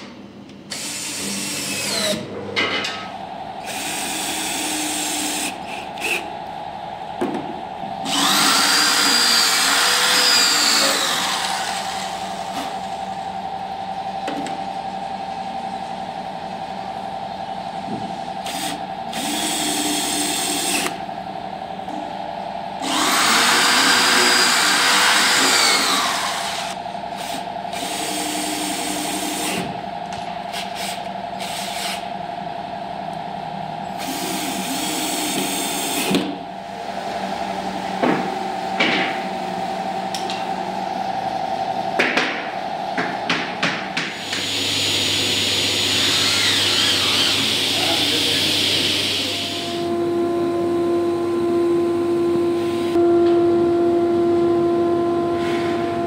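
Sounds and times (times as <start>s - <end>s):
drill driving screws: 0.7s - 2.2s, 8.1s - 12.0s, 18.4s - 20.9s, 22.8s - 29.6s, 44.2s - 49.5s.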